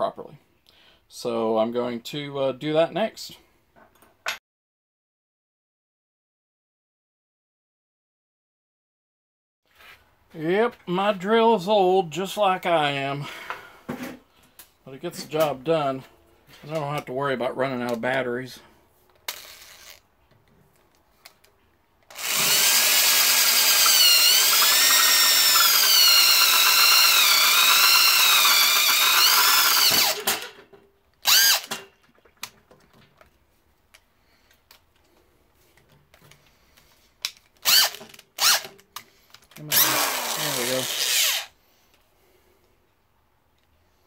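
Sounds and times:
electric drill whining: 0:19.3 - 0:20.0, 0:22.1 - 0:30.5, 0:31.2 - 0:31.8, 0:37.6 - 0:38.7, 0:39.7 - 0:41.6.

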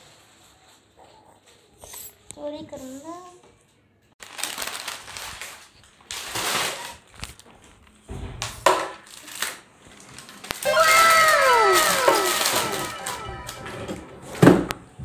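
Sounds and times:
snack packet crinkling: 0:04.2 - 0:07.4
falling tones: 0:10.6 - 0:14.4.

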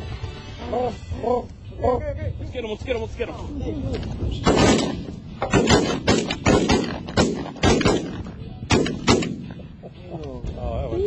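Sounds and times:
shotgun shots: 0:04.4 - 0:09.6.

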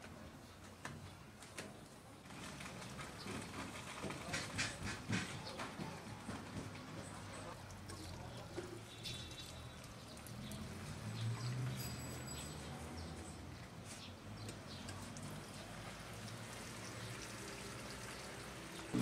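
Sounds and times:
water pouring from watering can: 0:07.5 - 0:12.7, 0:14.9 - 0:19.0.

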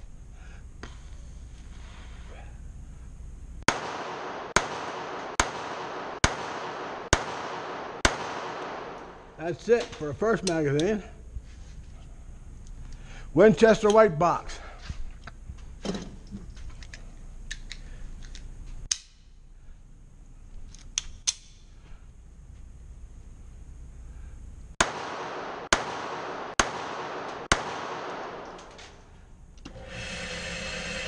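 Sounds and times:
pistol shots indoors: 0:03.7 - 0:09.4, 0:24.8 - 0:29.0
motor humming: 0:29.6 - 0:31.0.

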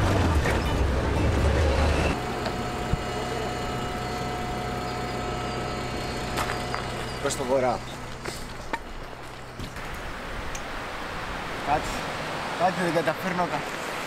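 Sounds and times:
vehicle engine rumble: 0:00.0 - 0:10.4
faint steady whine: 0:01.8 - 0:11.0.

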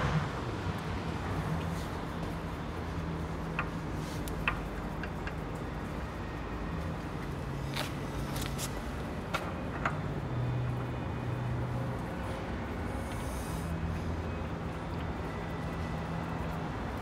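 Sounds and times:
workshop background hum: 0:00.0 - 0:17.0.

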